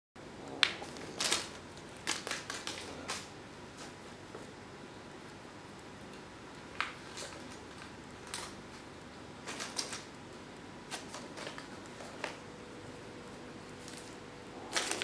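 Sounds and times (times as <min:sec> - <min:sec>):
paper crinkling and rustling: 0:00.7 - 0:04.0, 0:06.7 - 0:10.2, 0:10.9 - 0:12.5, 0:13.6 - 0:15.0.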